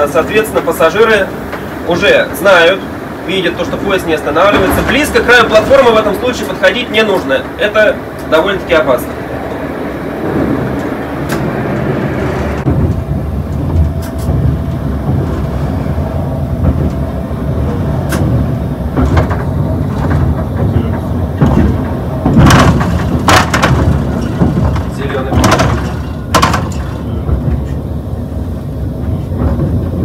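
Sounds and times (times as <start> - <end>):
train clicks and clatters: 0.0 - 30.0
train wheels rumbling on rail: 0.0 - 30.0.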